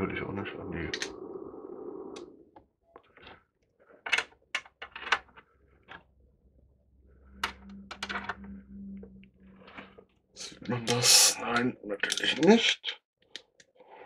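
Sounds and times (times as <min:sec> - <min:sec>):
low wavering hum: 0:06.1 - 0:10.9.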